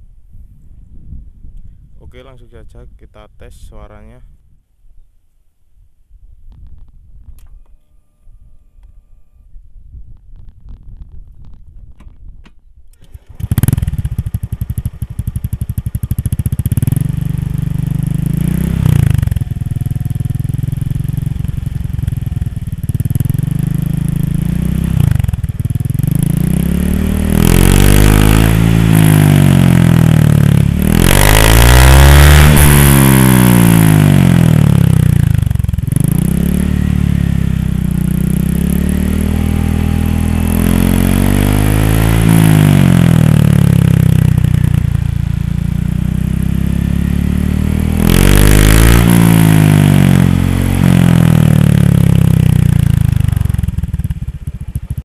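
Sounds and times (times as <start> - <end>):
scooter engine revving: 13.0 - 55.0.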